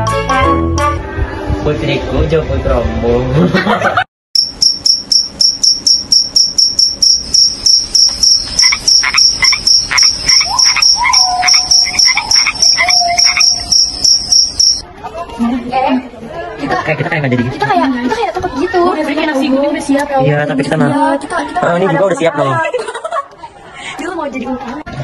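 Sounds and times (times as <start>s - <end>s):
cricket chirping: 4.4s - 14.8s
lower cricket chirping: 4.4s - 14.8s.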